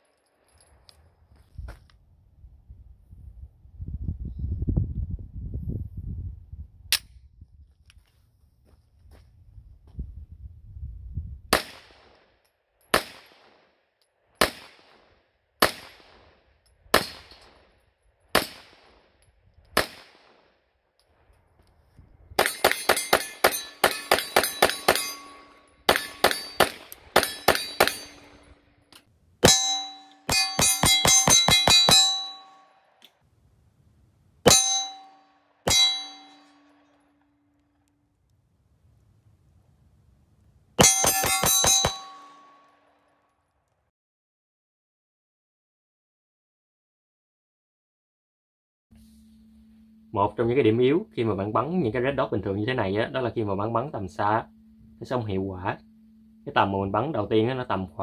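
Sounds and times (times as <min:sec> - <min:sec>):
pistol gunshots: 0:11.5 - 0:13.8, 0:14.4 - 0:17.7, 0:18.3 - 0:20.6, 0:22.4 - 0:28.5
bullets ringing on steel target: 0:22.4 - 0:28.8, 0:29.4 - 0:33.0, 0:34.5 - 0:37.2, 0:40.8 - 0:43.0.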